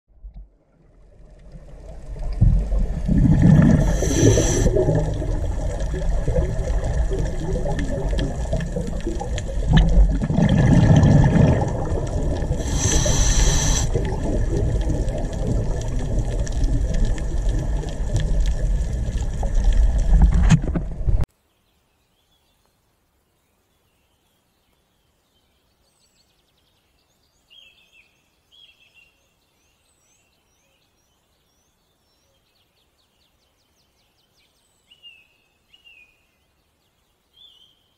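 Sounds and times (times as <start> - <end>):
underwater low rumble: 0.1 - 21.3
diver breathing bubbles and hiss: 2.2 - 19.7.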